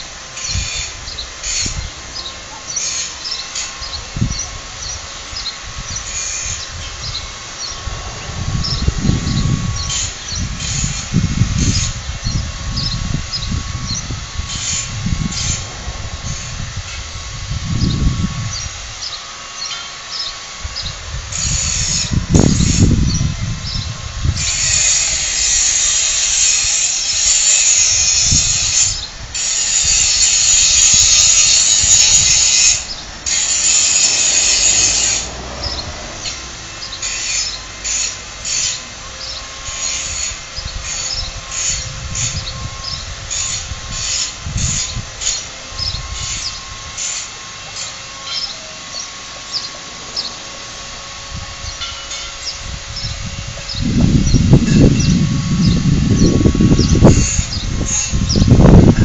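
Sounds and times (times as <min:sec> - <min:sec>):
tool rasping: 0:00.0 - 0:07.9, 0:08.6 - 0:20.3, 0:21.3 - 0:51.0, 0:51.7 - 0:59.0
rhythmic sawing strokes: 0:00.0 - 0:59.0
wind rumble on microphone: 0:03.8 - 0:19.2, 0:20.6 - 0:37.4, 0:39.0 - 0:47.0, 0:51.0 - 0:59.0.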